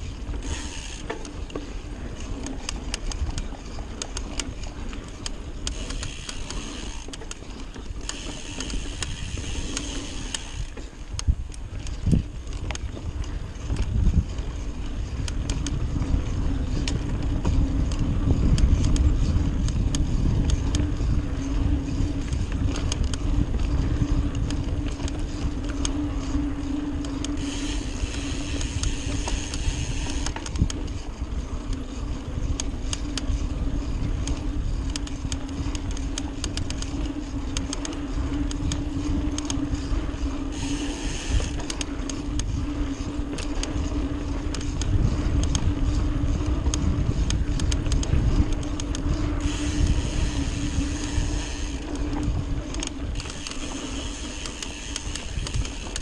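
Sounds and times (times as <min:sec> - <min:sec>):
bike clicks and rattles: 0:00.0 - 0:56.0
wind and tyre rumble: 0:00.0 - 0:56.0
steady hum: 0:13.2 - 0:56.0.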